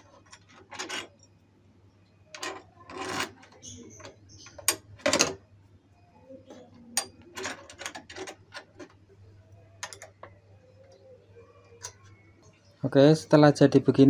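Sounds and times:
spanner clicking on metal parts: 0:00.0 - 0:01.3, 0:02.3 - 0:05.3, 0:07.0 - 0:09.0, 0:09.8 - 0:10.3.

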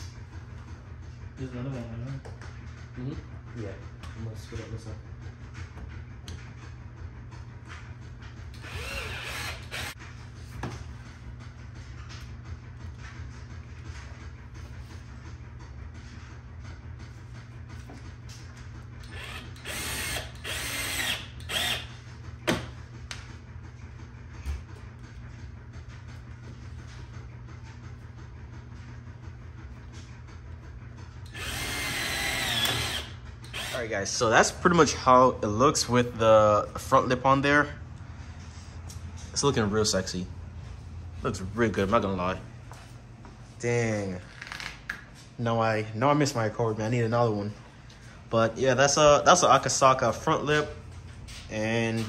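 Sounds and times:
power drill whirring: 0:08.5 - 0:10.0, 0:19.0 - 0:21.9, 0:31.3 - 0:33.9.

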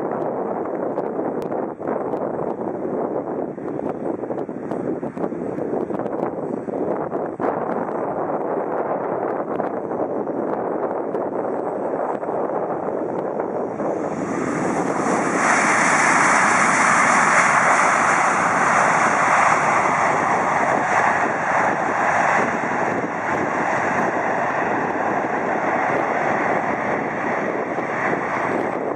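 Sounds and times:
jet engines in reverse thrust: 0:11.1 - 0:28.9.

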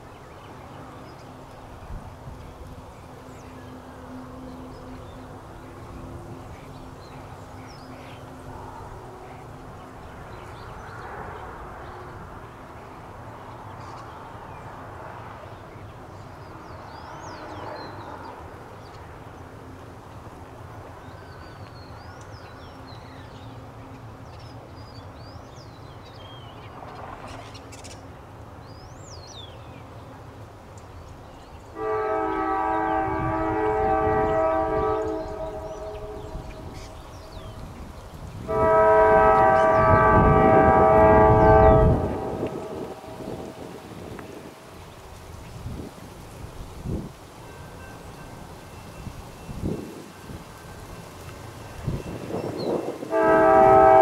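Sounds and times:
locomotive horn blast: 0:31.7 - 0:37.4, 0:38.3 - 0:44.5, 0:51.8 - 0:54.0
locomotive engines rumbling: 0:31.7 - 0:54.0.

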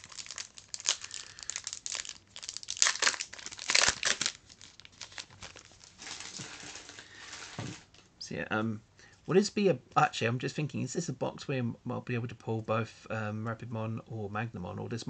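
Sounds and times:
plastic wrapper crinkling and tearing: 0:00.0 - 0:08.0.

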